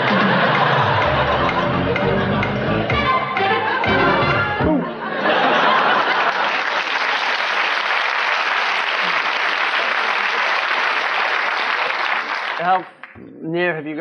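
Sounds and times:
audience applauding: 0:00.0 - 0:02.0, 0:05.3 - 0:13.2
audience laughter: 0:00.0 - 0:12.4.

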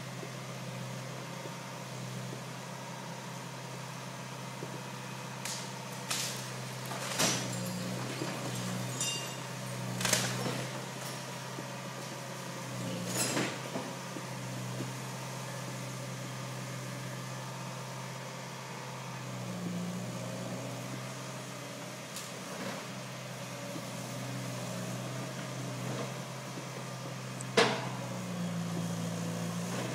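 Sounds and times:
diesel engine running: 0:00.0 - 0:29.9
clanks and crashes of rubble: 0:05.4 - 0:11.4, 0:13.0 - 0:13.9.

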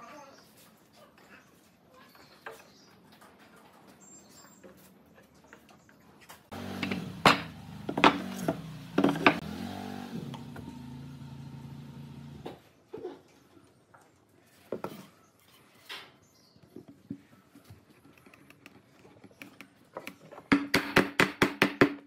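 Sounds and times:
wooden pieces knocking on workbench: 0:06.7 - 0:09.4.

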